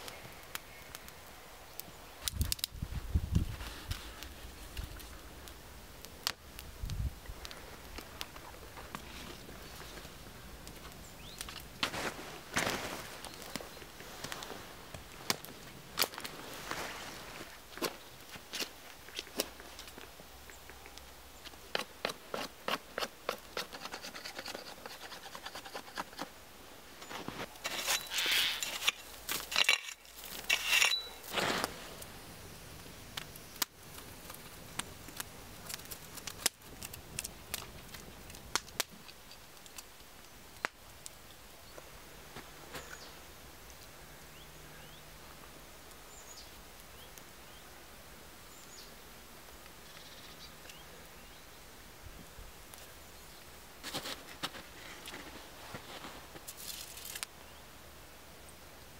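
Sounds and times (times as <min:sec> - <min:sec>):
knife shaving wooden stick: 0:21.8 - 0:26.3.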